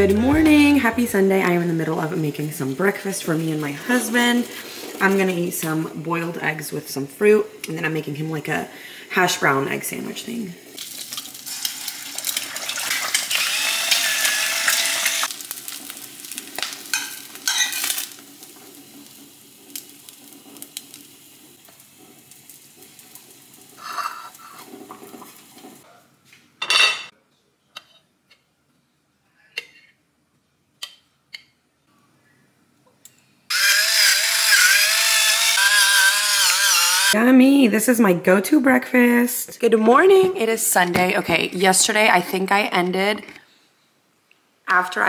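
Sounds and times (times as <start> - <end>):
egg sizzling in frying pan: 10.6 - 25.8, 33.5 - 37.2
electric pepper grinder whirring: 12.3 - 15.4, 33.5 - 37.2
plates and cutlery clinking: 26.6 - 27.1.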